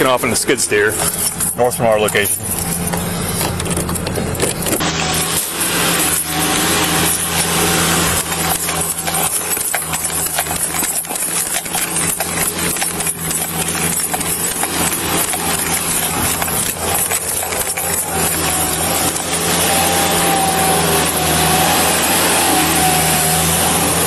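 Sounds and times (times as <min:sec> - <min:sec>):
low engine hum: 0:00.0 - 0:24.0
camera knocking and jostling: 0:02.4 - 0:04.9.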